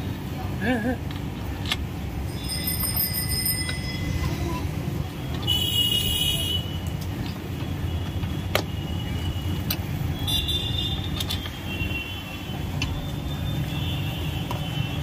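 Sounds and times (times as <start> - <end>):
street traffic rumble: 0.0 - 15.0
vehicle horn toots: 5.5 - 6.7.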